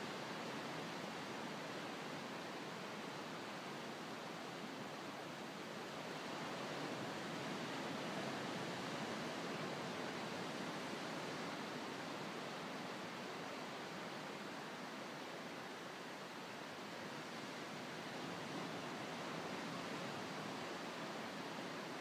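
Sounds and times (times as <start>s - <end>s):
ocean waves breaking on sand: 4.6s - 15.8s, 16.8s - 22.0s.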